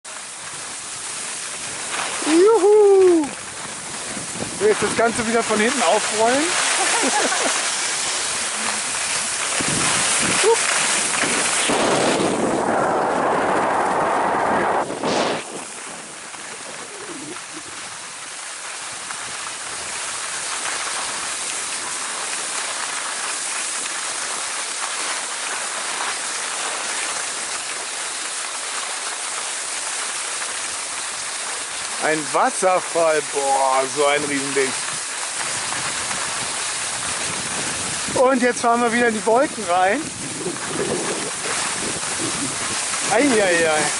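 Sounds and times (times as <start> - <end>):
skis sliding over snow: 0.1 - 43.9
wind on microphone: 1.6 - 18.2, 34.8 - 38.3, 39.4 - 43.9.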